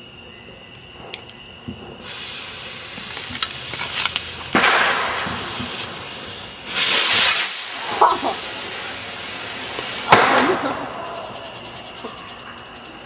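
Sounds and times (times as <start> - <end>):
firework hissing and crackling: 1.5 - 13.0.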